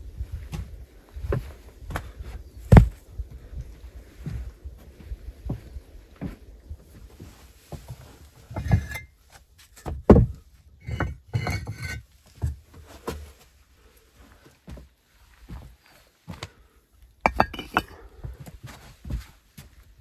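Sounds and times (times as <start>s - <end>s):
bricks knocking on wooden boards: 8.5s - 9.0s, 9.9s - 12.6s, 17.2s - 18.0s.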